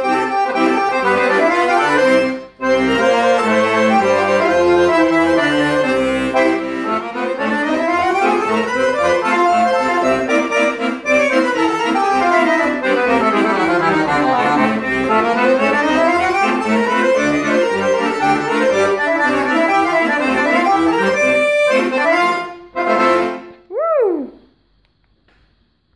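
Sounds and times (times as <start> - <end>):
accordion playing a tune: 0.0 - 23.6
swooping tone: 23.7 - 24.5.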